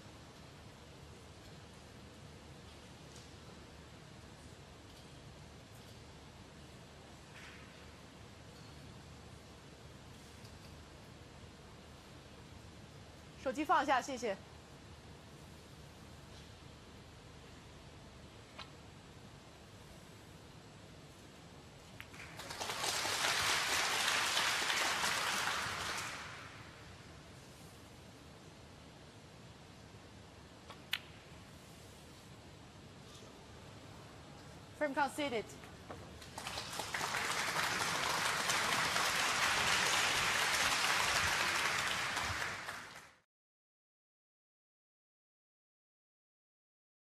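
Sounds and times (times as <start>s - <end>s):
audience applauding: 22.1s - 26.6s, 36.2s - 43.2s.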